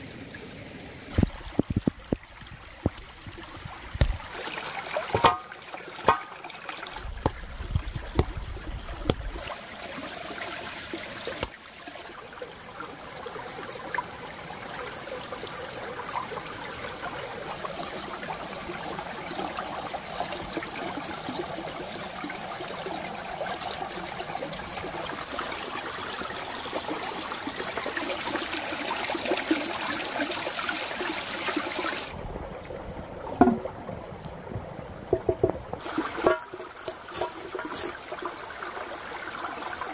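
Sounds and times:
stream trickling over stones: 0.0 - 32.2, 35.1 - 39.9
cookware knocking and clinking: 5.1 - 5.5.

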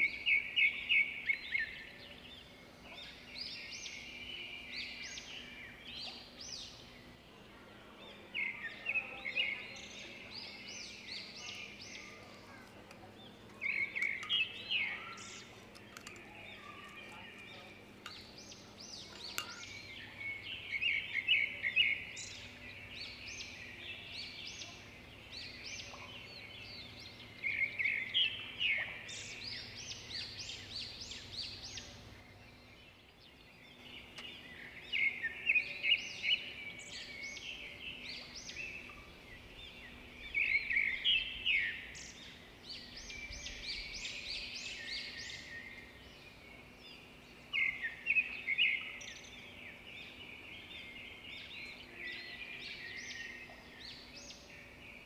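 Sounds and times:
birds chirping: 0.0 - 55.0.

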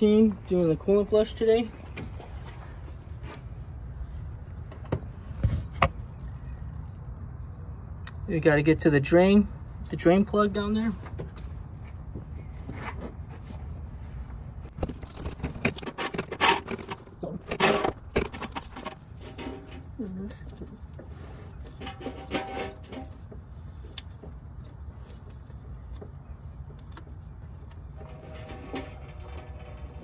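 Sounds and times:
plastic drain plug clicks and scrapes: 14.8 - 19.8, 28.0 - 30.0.

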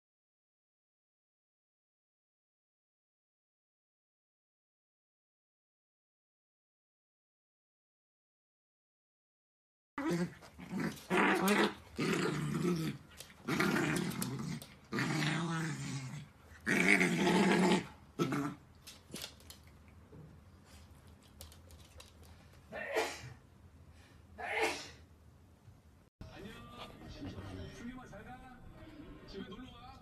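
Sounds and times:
dogs growling: 10.0 - 19.2.

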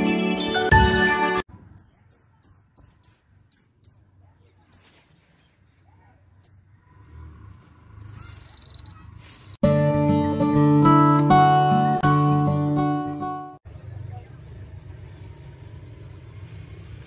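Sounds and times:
nestling birds chirping: 1.8 - 5.8, 8.0 - 9.6.

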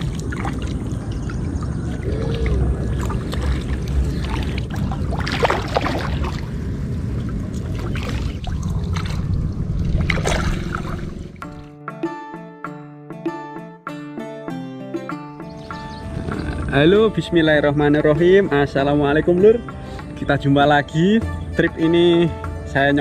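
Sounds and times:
low rumble: 0.0 - 11.7
water splashing and sloshing: 0.0 - 11.7.

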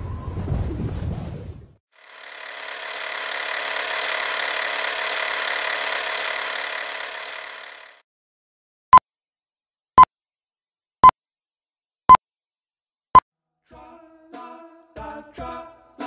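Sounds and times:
film projector whirring and rattling: 1.9 - 8.0.

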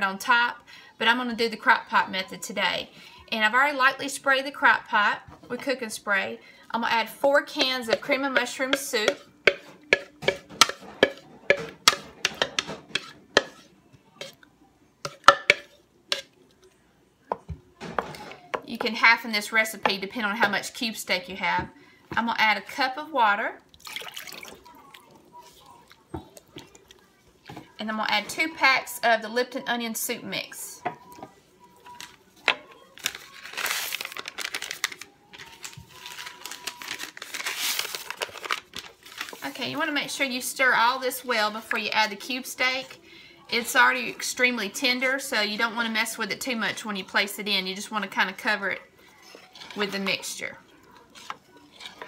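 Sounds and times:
packets crinkling and rustling: 31.8 - 39.8.

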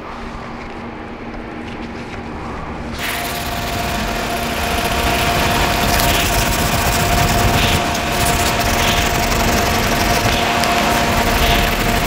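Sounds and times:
steady machine hum: 0.0 - 12.0
hand sanding with sandpaper: 3.0 - 12.0.

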